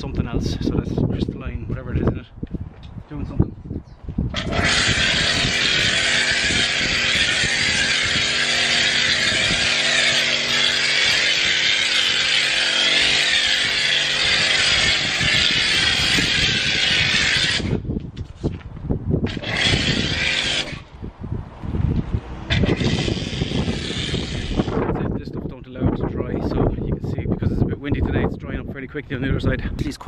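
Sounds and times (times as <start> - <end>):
pressure washer pump humming: 4.4 - 17.8, 19.3 - 20.8, 22.5 - 24.7
hiss of foam spray: 22.6 - 24.6.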